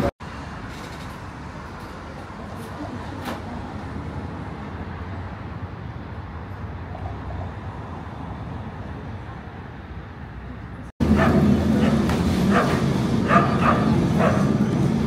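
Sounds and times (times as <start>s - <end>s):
tram wheels rumbling on rails: 0.0s - 4.7s, 11.0s - 15.0s.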